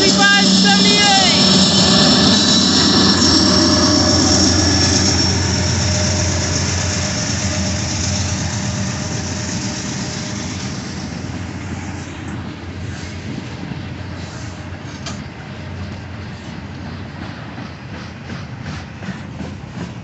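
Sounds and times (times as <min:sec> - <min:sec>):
thin high whine: 0:00.0 - 0:12.2
freight train wheels clattering: 0:00.0 - 0:20.0.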